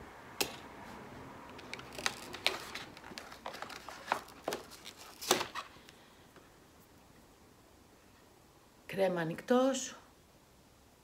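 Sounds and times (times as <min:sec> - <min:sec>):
cardboard packaging rustling: 0:01.5 - 0:05.9.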